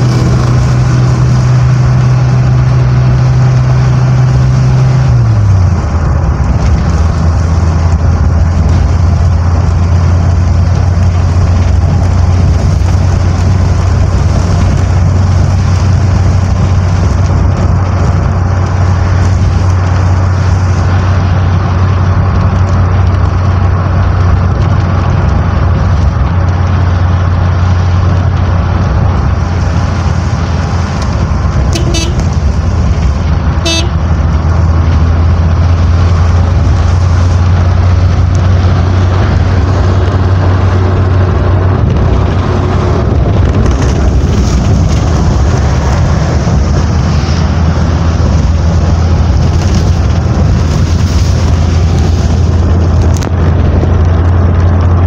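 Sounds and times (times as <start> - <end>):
road vehicle rumbling: 0.0 - 55.0
horn toots: 31.7 - 32.5, 33.6 - 34.1.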